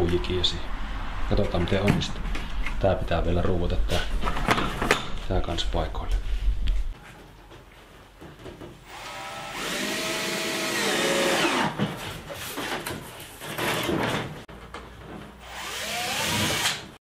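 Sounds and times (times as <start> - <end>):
power drill driving screws: 8.8 - 11.8, 15.4 - 16.9.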